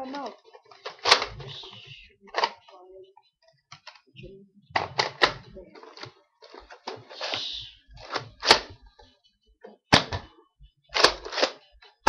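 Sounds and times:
toy blaster plastic clicks: 0.1s - 2.7s, 6.8s - 8.7s, 10.9s - 11.6s.

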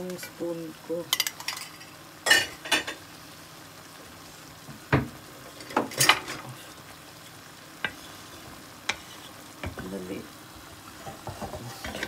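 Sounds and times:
gravy simmering in pan: 0.8s - 12.0s.

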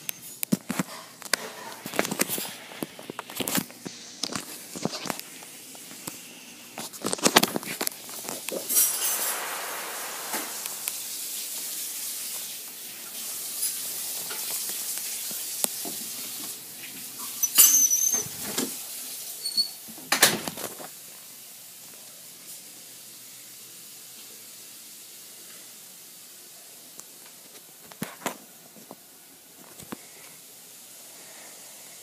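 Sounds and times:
short high squeak: 17.3s - 18.4s, 19.4s - 19.8s.

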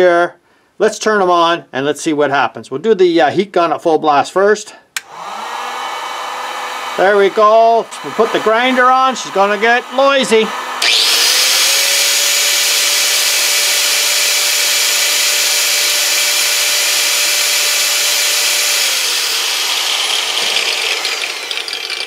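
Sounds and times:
angle grinder whine: 5.0s - 22.0s
heat gun blowing air: 5.0s - 22.0s.

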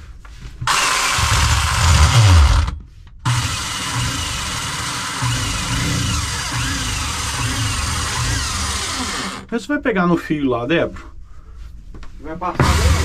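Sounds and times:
cordless drill boring into wall: 0.6s - 9.5s, 12.6s - 13.0s
drill bit squealing: 3.3s - 9.5s.

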